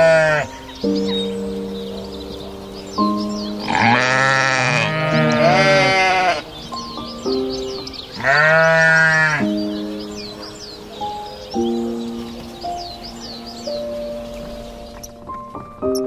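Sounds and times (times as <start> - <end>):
goat bleating: 0.0 - 0.5, 3.6 - 6.5, 8.2 - 9.4
calm background music: 0.0 - 16.0.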